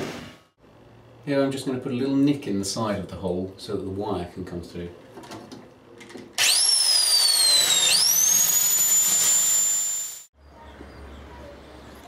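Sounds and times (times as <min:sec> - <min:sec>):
electric drill whining: 0:06.4 - 0:10.3.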